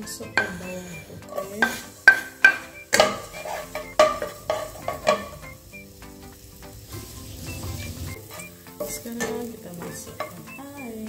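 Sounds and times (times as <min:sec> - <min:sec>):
metal pot ringing: 0:00.0 - 0:06.0, 0:06.9 - 0:10.7
wooden spatula stirring in pot: 0:00.0 - 0:10.7
wood knocking on metal pot: 0:00.4 - 0:00.7, 0:01.3 - 0:05.6.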